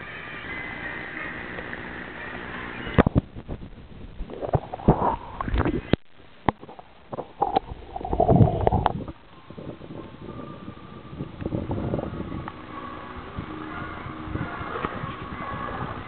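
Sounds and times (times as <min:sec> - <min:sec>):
water sloshing and gurgling: 0:03.1 - 0:09.2.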